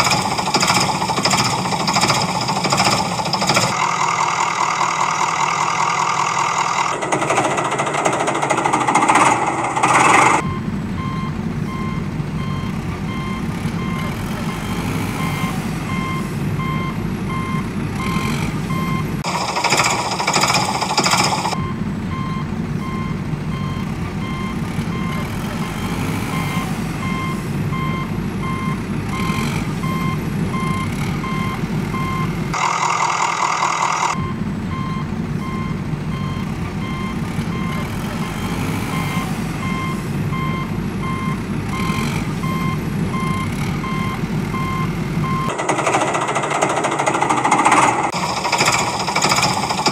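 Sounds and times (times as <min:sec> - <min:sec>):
reversing alarm beeping: 0:00.0 - 0:49.9
low engine rumble: 0:10.4 - 0:25.7, 0:34.1 - 0:38.2.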